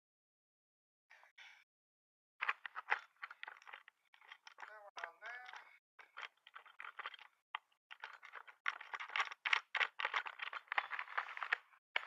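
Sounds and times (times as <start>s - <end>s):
metal parts clicking and rattling: 2.4s - 12.0s.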